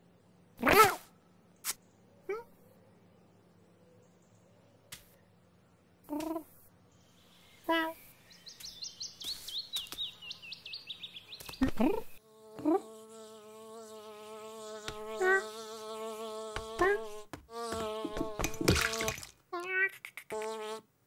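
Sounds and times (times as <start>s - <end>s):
fly buzzing: 11.4s - 20.9s.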